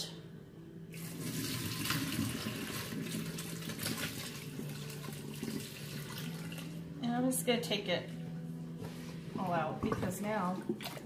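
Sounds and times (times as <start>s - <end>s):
faucet water splashing into sink: 1.0s - 6.7s.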